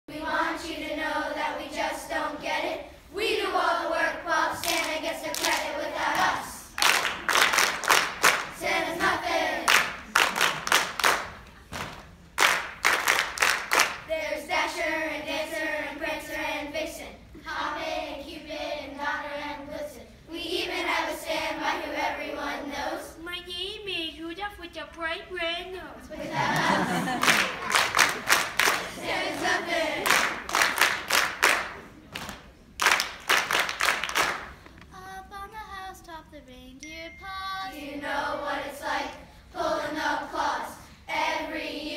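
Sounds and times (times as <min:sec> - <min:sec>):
children's choir singing: 0:00.1 - 0:10.1, 0:13.6 - 0:23.1, 0:26.0 - 0:31.9, 0:37.2 - 0:41.9
rhythmic hand clapping: 0:04.6 - 0:14.1, 0:26.5 - 0:34.8.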